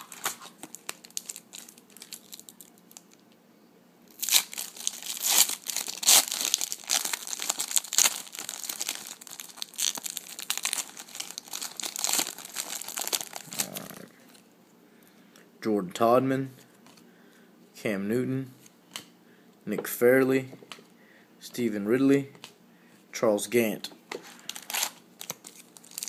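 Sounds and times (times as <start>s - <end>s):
foil pack tearing and crinkling: 0.0s - 3.1s, 4.1s - 14.1s, 24.4s - 26.0s.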